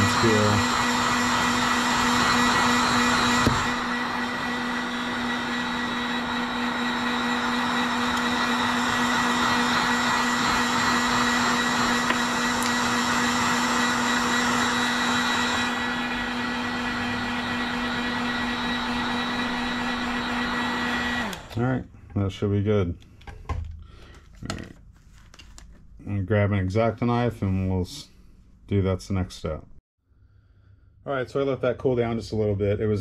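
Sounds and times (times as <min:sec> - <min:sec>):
heat gun blower running: 0:00.0 - 0:21.9.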